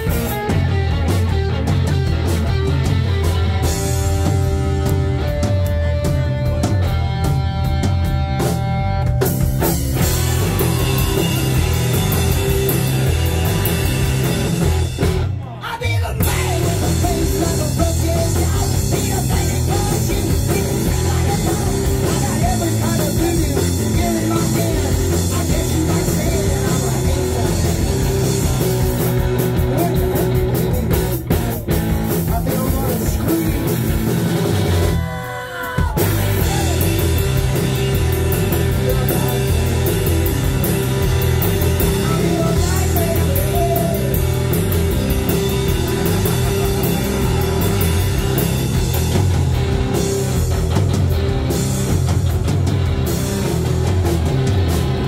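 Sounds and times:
bass guitar: 0.0s - 55.0s
drum kit: 0.0s - 55.0s
electric guitar: 0.0s - 55.0s.

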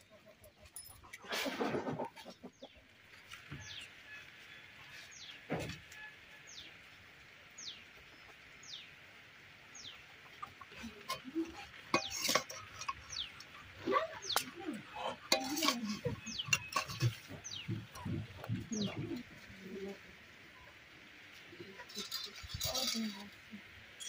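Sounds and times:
metal spatula clinking on wok: 11.1s - 13.3s, 15.3s - 17.1s
chicks chirping: 16.0s - 19.2s.

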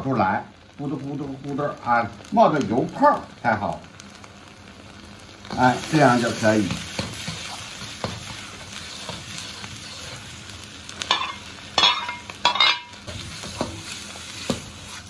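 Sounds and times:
food sizzling in oil: 0.0s - 15.0s
metal spatula scraping a wok: 6.9s - 10.3s, 11.0s - 15.0s.

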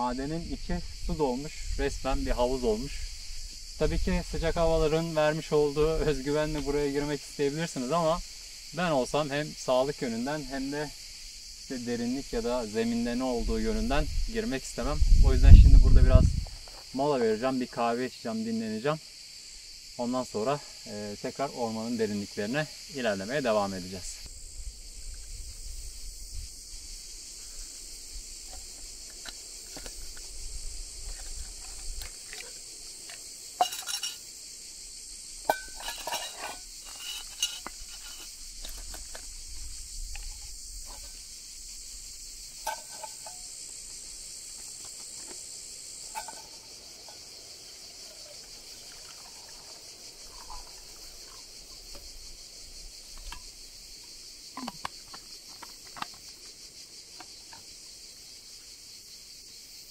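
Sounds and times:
insects droning: 0.0s - 59.9s
coffee gear clinking and knocking: 31.1s - 34.2s, 35.5s - 39.3s, 42.6s - 43.5s, 46.1s - 47.3s.

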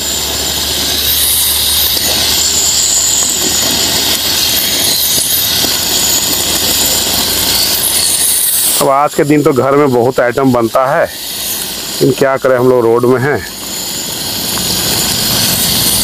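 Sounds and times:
chicken sizzling in hot oil: 0.0s - 12.4s.

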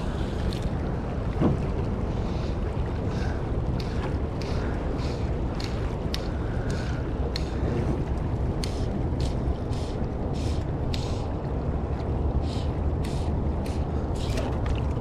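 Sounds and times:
river water rushing: 0.0s - 15.0s
wind buffeting microphone: 0.0s - 15.0s.

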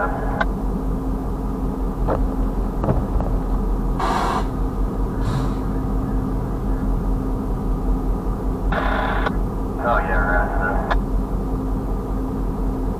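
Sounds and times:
engine idling: 0.0s - 12.9s
short hissing bursts: 4.0s - 4.5s, 5.2s - 5.7s.

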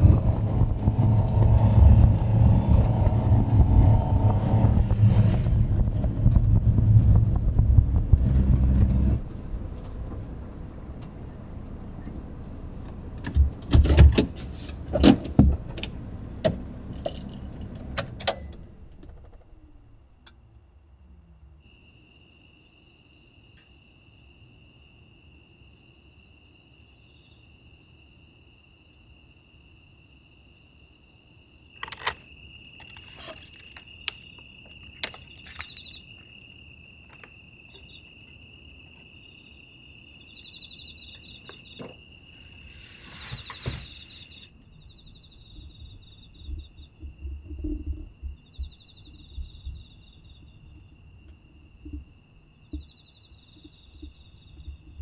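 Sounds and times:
crickets trilling: 18.6s - 55.0s
brief rustle: 42.6s - 44.5s.

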